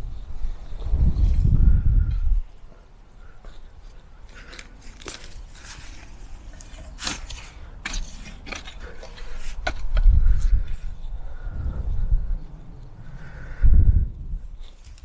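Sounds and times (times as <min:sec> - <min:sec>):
garden fork digging dry soil: 0:04.3 - 0:11.0
low rumble: 0:10.0 - 0:14.7.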